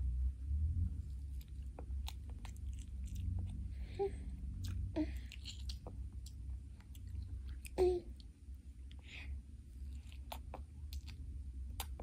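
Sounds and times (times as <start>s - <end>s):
baby chewing mouth clicks: 1.4s - 3.6s, 4.6s - 8.3s, 9.9s - 12.0s
baby humming: 7.8s - 8.1s.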